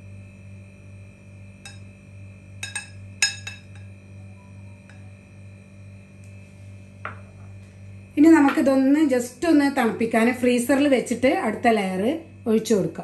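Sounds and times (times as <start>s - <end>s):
steady hum: 0.0s - 13.0s
spoon tapping glass dish: 1.6s - 1.9s, 2.6s - 4.0s.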